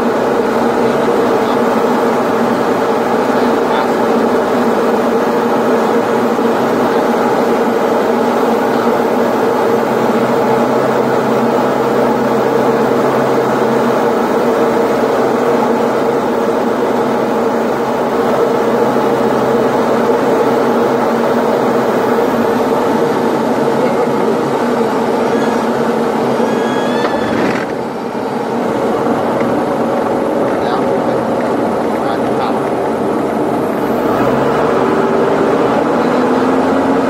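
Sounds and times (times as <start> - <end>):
aircraft engine and propeller drone: 0.0 - 37.0
airflow noise: 0.0 - 37.0.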